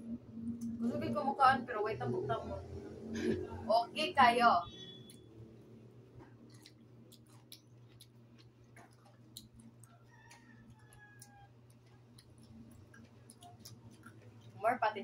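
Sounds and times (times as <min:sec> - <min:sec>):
chewing: 0:06.1 - 0:14.6.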